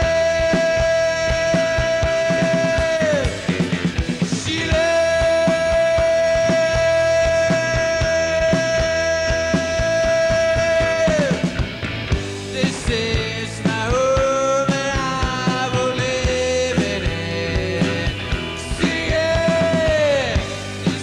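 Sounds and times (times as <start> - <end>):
drums beating: 0.0 - 21.0
live rock band playing: 0.0 - 21.0.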